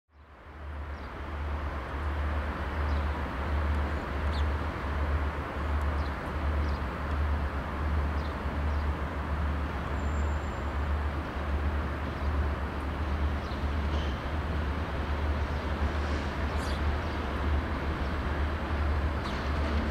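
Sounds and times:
birds chirping: 0:16.5 - 0:16.9.

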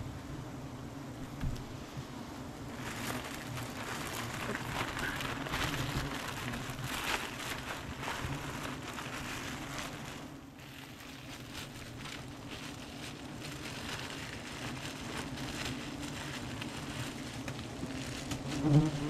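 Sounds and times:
bees buzzing: 0:00.0 - 0:10.6, 0:17.1 - 0:19.0
crackly rustle: 0:01.2 - 0:19.0.

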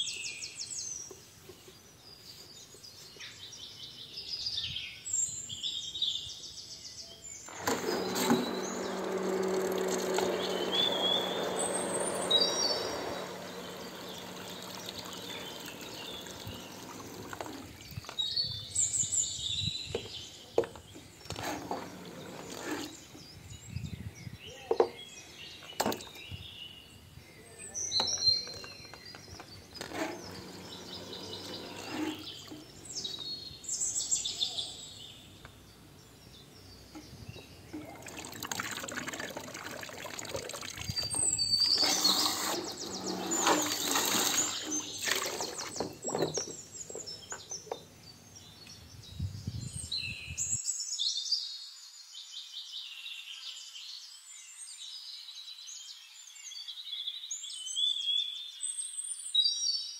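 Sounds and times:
birds chirping: 0:00.0 - 0:50.6
water splashing in a plastic tub: 0:07.5 - 0:18.2, 0:37.7 - 0:46.5.

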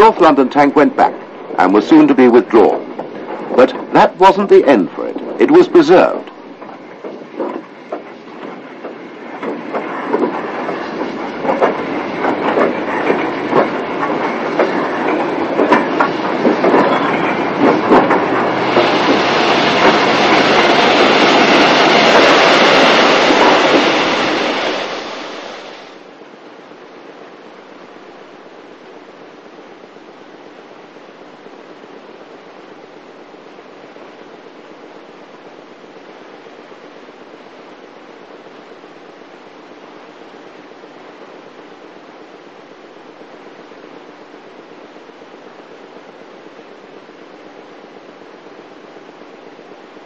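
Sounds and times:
steam locomotive beats: 0:00.0 - 0:26.0
wheel clatter: 0:06.6 - 0:24.7.

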